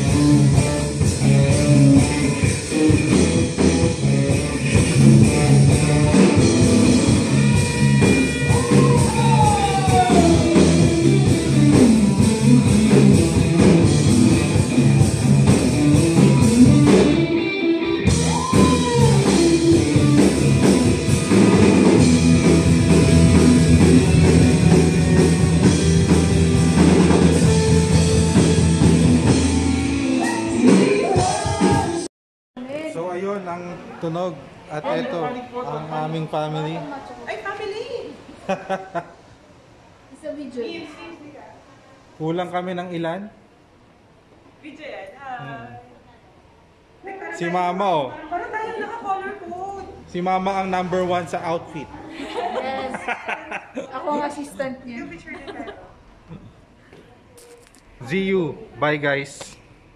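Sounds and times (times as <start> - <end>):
drums: 0.0 - 32.1
electric guitar: 0.0 - 32.1
person singing: 8.7 - 10.9, 30.0 - 32.1.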